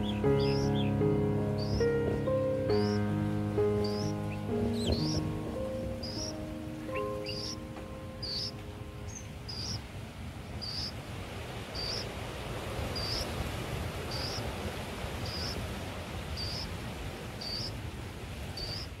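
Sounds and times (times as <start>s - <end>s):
insect chirping: 0.0s - 9.9s, 10.6s - 11.0s, 11.8s - 12.1s, 12.9s - 13.4s, 14.1s - 14.5s, 15.2s - 15.7s, 16.4s - 16.8s, 17.4s - 17.8s, 18.6s - 19.0s
background hiss: 0.0s - 19.0s.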